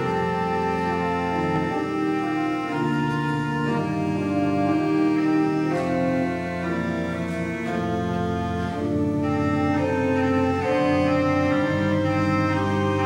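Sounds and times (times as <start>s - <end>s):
organ playing chords: 0.0s - 13.0s.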